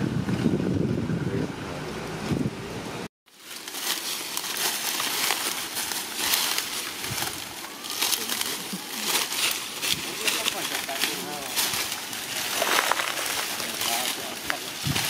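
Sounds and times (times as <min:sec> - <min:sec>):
wind rumbling on microphone: 0:00.0 - 0:03.1, 0:06.8 - 0:07.8, 0:11.5 - 0:15.0
dry leaves rustling underfoot: 0:03.3 - 0:15.0.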